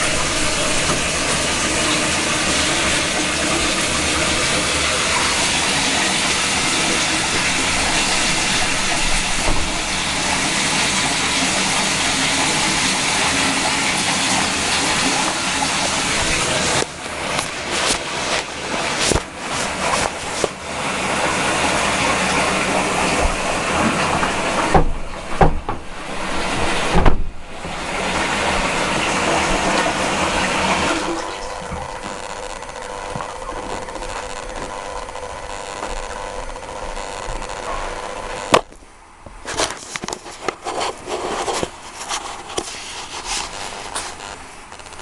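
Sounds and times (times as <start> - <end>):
fur rubbing against microphone: 15.8 - 20.6, 39.4 - 44.6.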